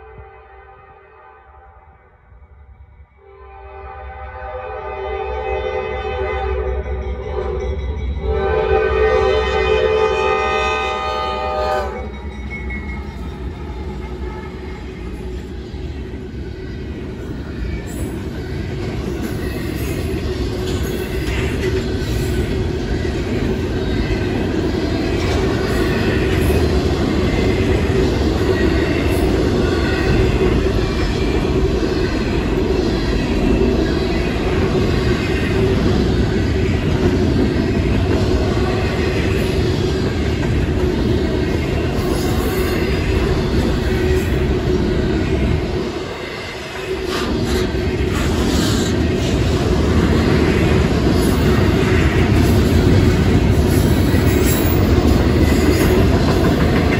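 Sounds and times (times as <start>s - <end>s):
locomotive horn: 0.0s - 2.2s, 3.2s - 7.6s, 8.3s - 12.1s
freight train rolling past: 0.0s - 56.9s.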